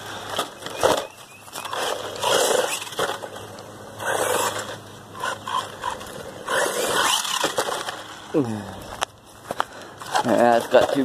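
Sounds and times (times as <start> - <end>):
rc truck motor: 0.0 - 8.4
tyres on grit: 0.0 - 11.0.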